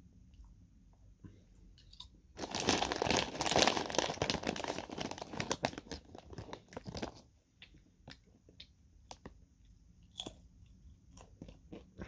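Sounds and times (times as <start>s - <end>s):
plastic bag crinkling: 2.4s - 7.3s
faint chewing crunches: 5.9s - 12.0s.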